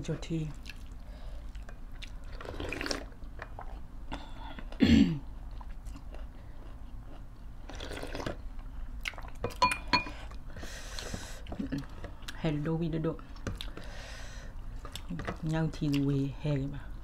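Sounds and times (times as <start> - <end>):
chewing: 0.5 - 3.9, 5.4 - 9.5, 13.4 - 13.9, 14.7 - 16.1
soup slurped from spoon: 2.3 - 3.1.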